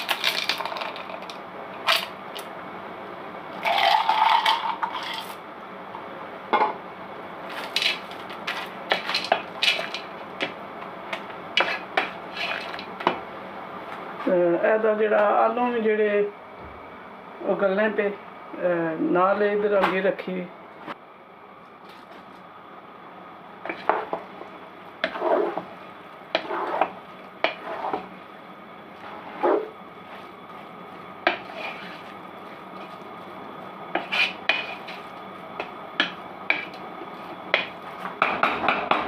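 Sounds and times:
faint steady hum: 0.0 - 39.0
spatula scraping a pot: 7.5 - 10.1, 11.6 - 12.9, 23.6 - 24.2, 25.0 - 25.7, 26.3 - 28.2, 28.9 - 33.1, 33.9 - 35.2, 36.0 - 38.0.

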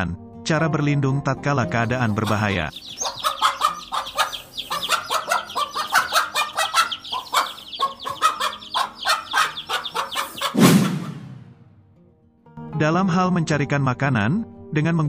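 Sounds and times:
chicks peeping: 1.7 - 10.9
low clucking: 1.8 - 10.6
loud fuller bird call: 1.8 - 11.4.

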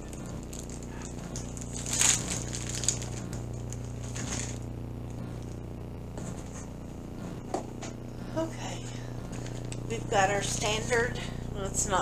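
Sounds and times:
plastic packaging crinkling: 0.0 - 4.7
steady low hum: 0.0 - 12.0.

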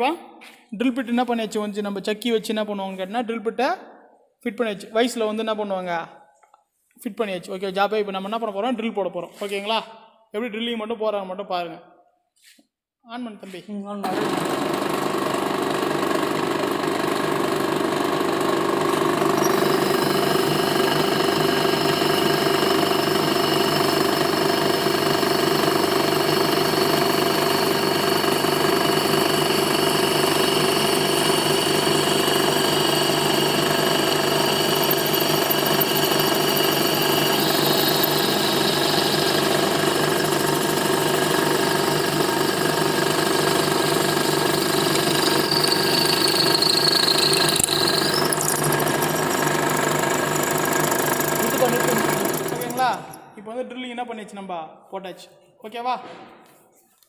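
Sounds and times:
drilling machine hum: 14.1 - 53.2.

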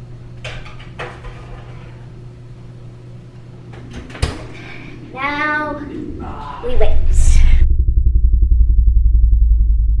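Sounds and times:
steady low hum: 0.0 - 10.0
oven door shutting: 3.7 - 4.8.

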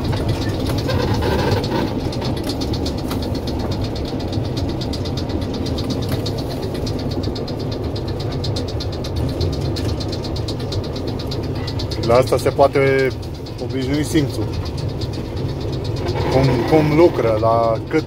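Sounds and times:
diesel locomotive engine rumbling: 0.0 - 18.0.

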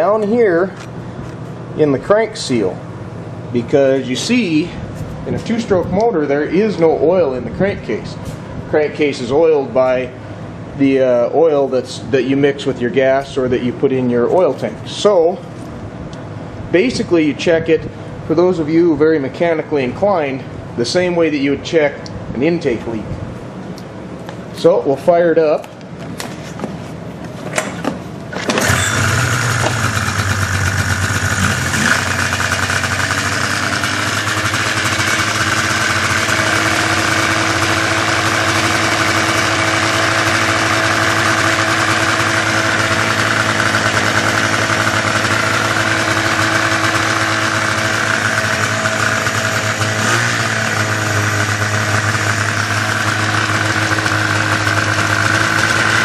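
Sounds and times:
snowmobile engine cranking: 28.3 - 56.0
snowmobile engine idling high: 28.6 - 56.0.

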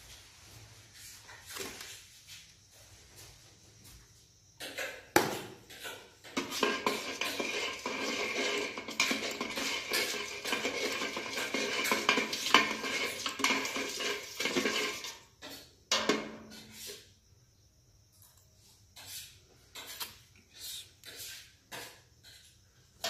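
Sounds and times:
metal moulds clattering in bucket: 5.7 - 16.6.

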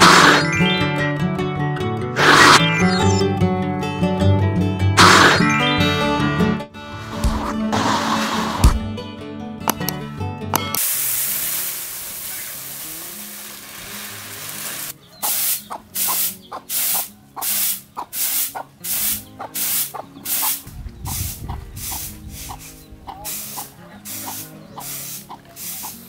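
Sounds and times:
rush of grains pouring: 10.8 - 14.9
rhythmic swishes of tossed rice: 10.8 - 26.0
rice grains hissing in woven tray: 10.8 - 26.0.

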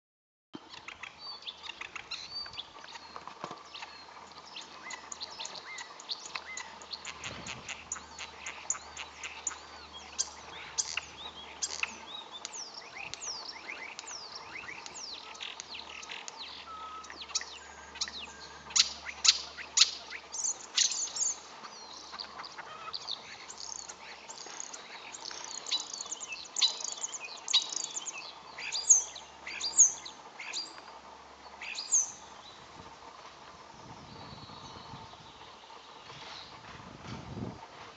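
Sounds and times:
starling singing: 3.9 - 30.7.

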